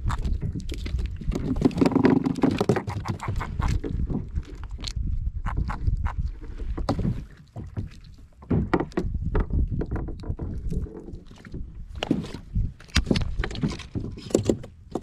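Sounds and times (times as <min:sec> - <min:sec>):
low rumble of water and wind: 0:00.0 - 0:15.0
fishing gear knocking on plastic: 0:01.3 - 0:04.3.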